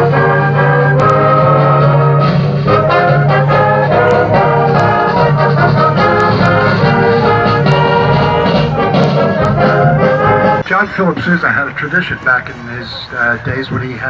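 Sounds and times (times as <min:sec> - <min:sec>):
brass band playing chords: 0:00.0 - 0:14.0.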